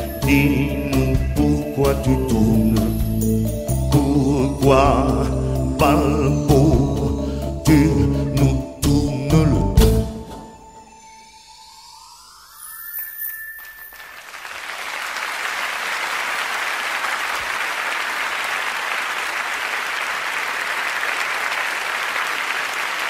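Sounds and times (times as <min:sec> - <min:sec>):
band rising note: 0:09.5 - 0:14.4
audience applauding: 0:13.9 - 0:23.0.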